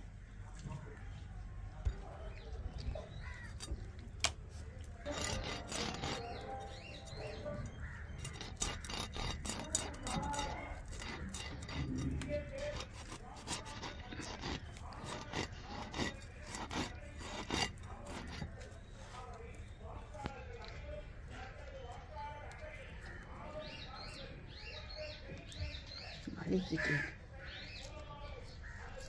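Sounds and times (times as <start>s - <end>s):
knife scraping fish scales: 3.3s - 19.4s.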